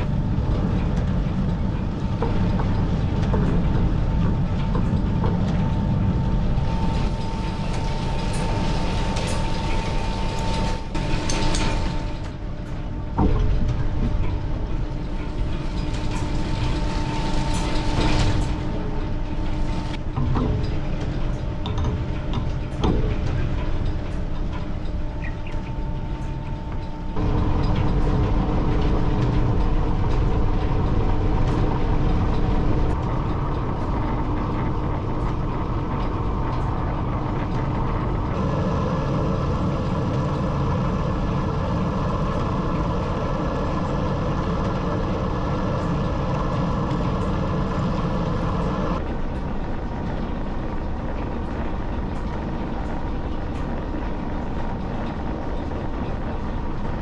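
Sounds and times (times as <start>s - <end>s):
lathe running: 38.3s - 49.0s.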